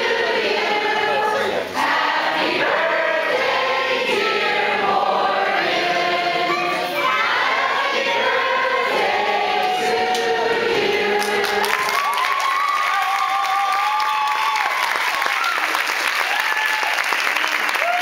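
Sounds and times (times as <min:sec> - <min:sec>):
group of voices singing: 0:00.0 - 0:12.1.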